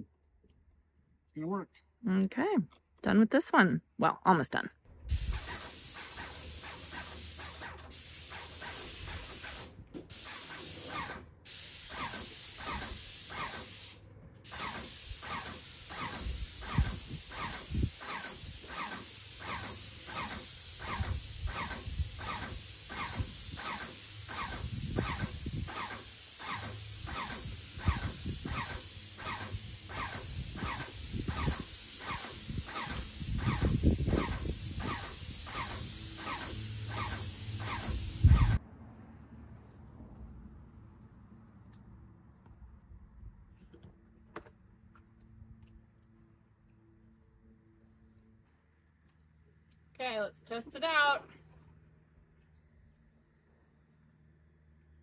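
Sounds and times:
paint sprayer hissing: 0:05.1 - 0:38.6.

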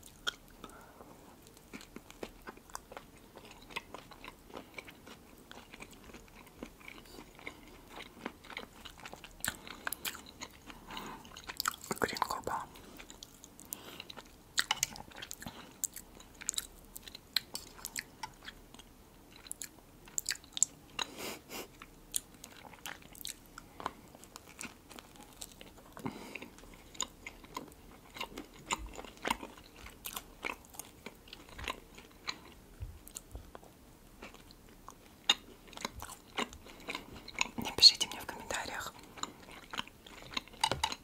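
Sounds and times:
chewing with wet clicks: 0:00.0 - 0:00.8, 0:01.4 - 0:41.0.

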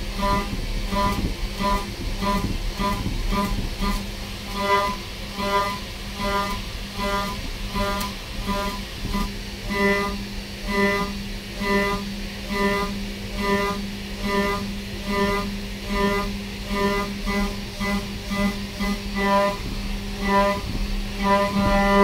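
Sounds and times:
low hum: 0:00.0 - 0:22.0.

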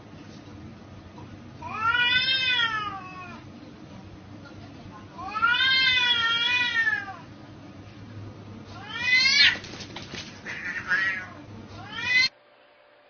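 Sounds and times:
cats yowling and screeching: 0:01.6 - 0:03.4, 0:05.2 - 0:07.3, 0:08.8 - 0:09.8, 0:10.4 - 0:12.3
cats scuffling: 0:08.8 - 0:11.3.

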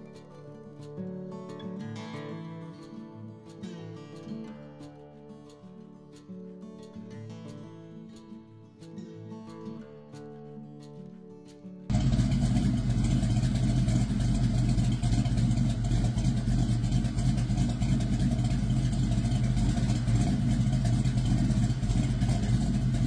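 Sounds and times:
car engine idling: 0:11.9 - 0:23.0.

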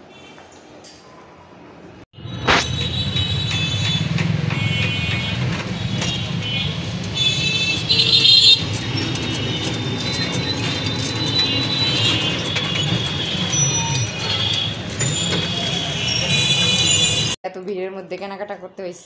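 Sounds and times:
low rumble of rickshaw ride: 0:01.8 - 0:17.4
high-pitched horn honks: 0:02.2 - 0:17.4.

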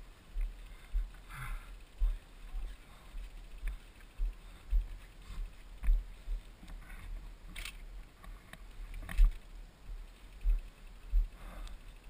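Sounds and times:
bike thumping on dirt trail: 0:00.3 - 0:12.0
bike clattering clicks: 0:06.6 - 0:09.5.

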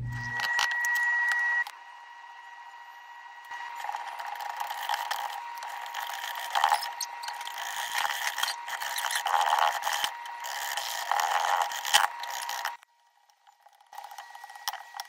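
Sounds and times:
potato masher squishing potatoes: 0:03.5 - 0:15.0.

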